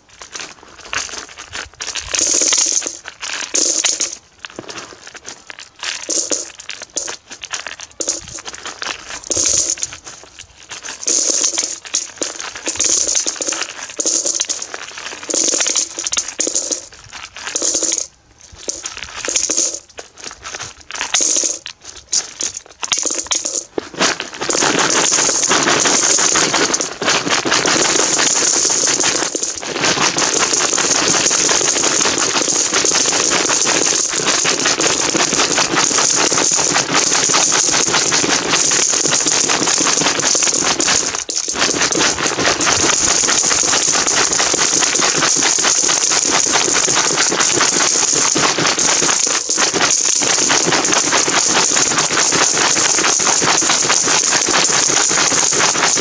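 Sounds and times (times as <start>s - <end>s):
coins pouring into metal bucket: 2.0s - 4.2s, 5.7s - 9.9s, 10.7s - 19.9s, 21.0s - 21.7s, 22.4s - 23.7s, 24.5s - 56.0s.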